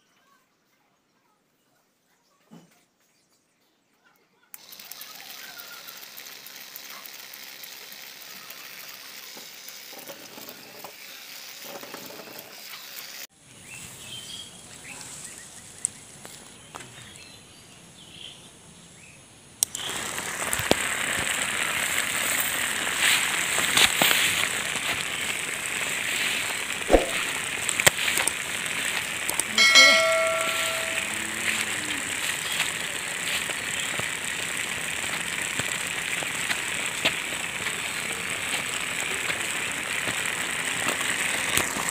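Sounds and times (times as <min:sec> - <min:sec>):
small motors whirring: 0:04.6 - 0:13.3, 0:19.7 - 0:29.7, 0:30.3 - 0:41.9
click: 0:19.6 - 0:19.8
bell-like ding: 0:29.5 - 0:31.4.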